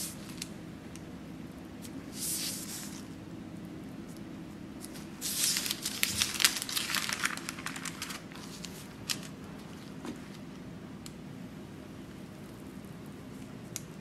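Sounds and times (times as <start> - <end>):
parchment paper crinkling: 4.8 - 10.5.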